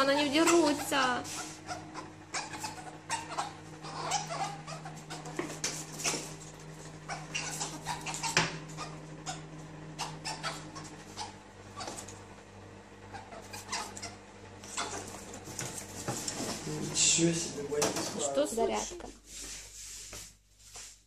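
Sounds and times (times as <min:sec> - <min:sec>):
steady low hum: 0:00.0 - 0:21.0
soft animal squeaks: 0:00.3 - 0:05.4, 0:07.0 - 0:09.4, 0:13.1 - 0:15.1
paws and claws tapping on tiles: 0:04.0 - 0:10.2, 0:13.4 - 0:16.6.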